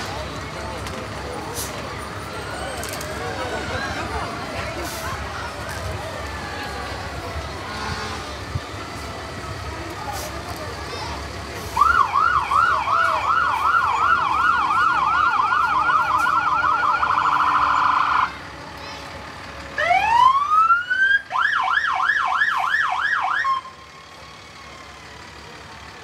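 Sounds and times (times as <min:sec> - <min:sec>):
siren wailing: 0:11.8 - 0:18.3, 0:19.8 - 0:23.7
siren yelping: 0:11.8 - 0:18.3.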